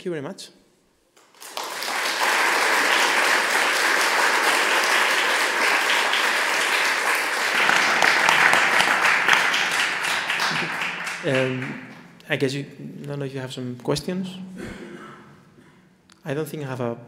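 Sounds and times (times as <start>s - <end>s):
audience applauding: 1.2s - 12.1s.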